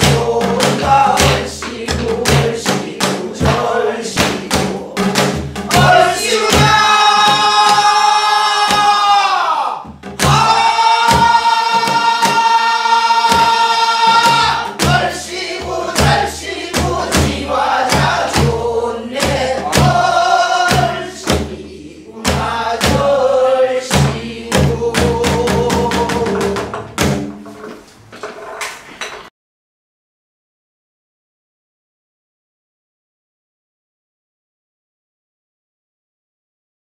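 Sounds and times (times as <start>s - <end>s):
barrel drum strokes: 0.0s - 9.0s, 9.9s - 29.2s
group singing folk song in unison: 0.0s - 26.8s.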